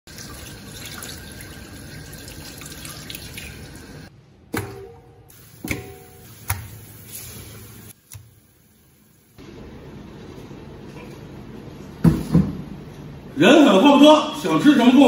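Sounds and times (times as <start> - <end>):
tap water running into sink: 0.1 - 4.1.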